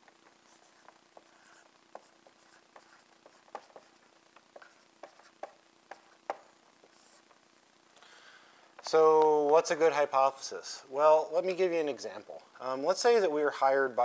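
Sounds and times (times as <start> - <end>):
marker tapping and squeaking: 0.0 - 7.4.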